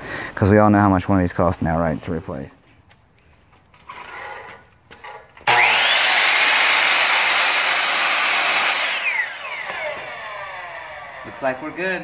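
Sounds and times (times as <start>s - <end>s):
miter saw motor whining: 5.4s - 12.0s.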